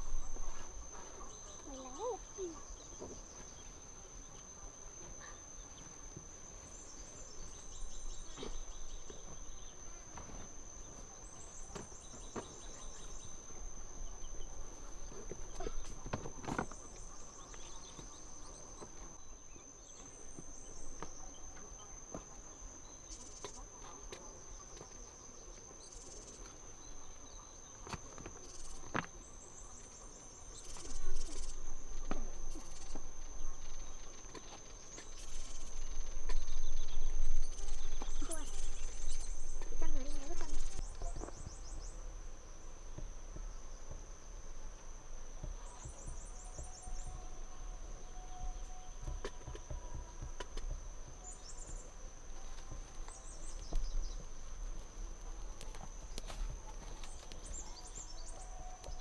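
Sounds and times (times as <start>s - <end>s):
high insect drone: 0.0s - 59.0s
bird chirps: 29.5s - 42.0s.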